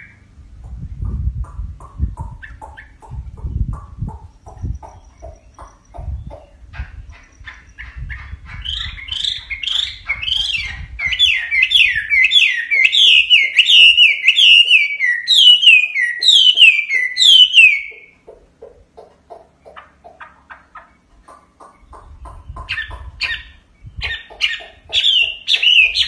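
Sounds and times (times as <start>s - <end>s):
bird singing whistled notes: 8.7s - 18.1s, 25.0s - 26.0s.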